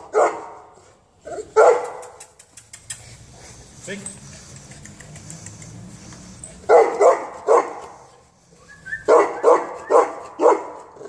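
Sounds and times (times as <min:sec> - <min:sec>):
dog barking: 0:00.0 - 0:00.7, 0:01.3 - 0:02.2, 0:06.7 - 0:08.0, 0:09.0 - 0:11.0.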